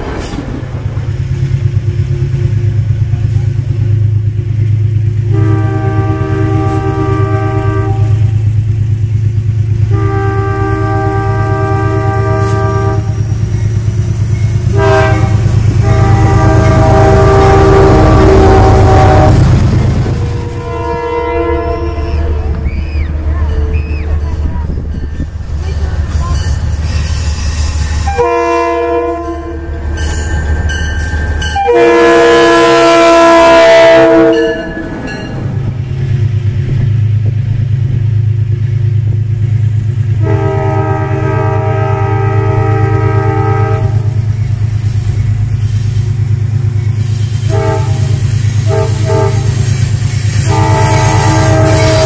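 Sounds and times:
diesel engine droning: 0:00.0 - 0:26.8
train air horn blasts: 0:05.3 - 0:08.4, 0:09.8 - 0:13.3, 0:14.6 - 0:22.6, 0:27.7 - 0:30.0, 0:31.4 - 0:34.7, 0:40.2 - 0:44.2, 0:46.9 - 0:52.0.

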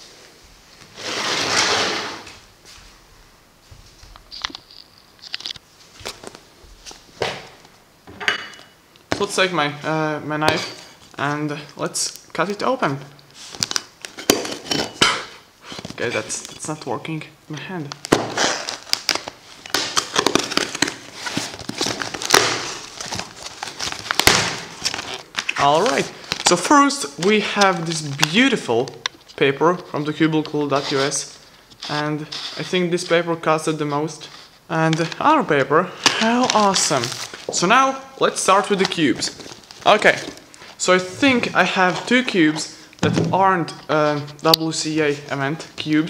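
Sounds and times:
knife slitting packing tape: 0:18.2 - 0:21.0.

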